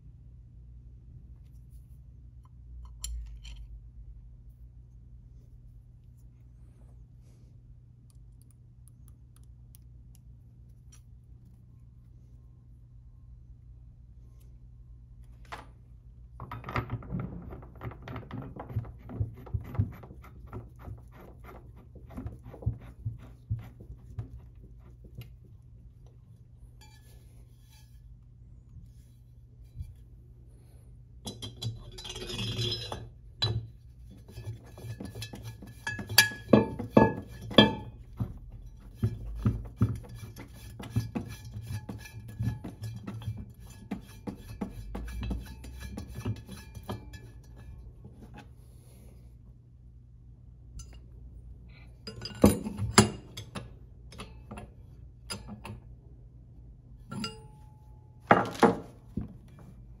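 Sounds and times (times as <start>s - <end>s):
metal clinks and scraping: 31.2s - 33.6s, 57.0s - 57.9s
metal clanks: 34.3s - 47.8s.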